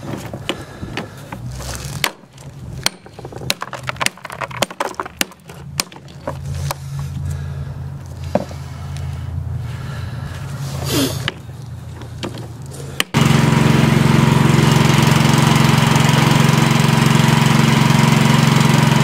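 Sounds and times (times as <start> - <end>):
hammer cracking rock: 0.4 - 6.8, 13.0 - 13.2.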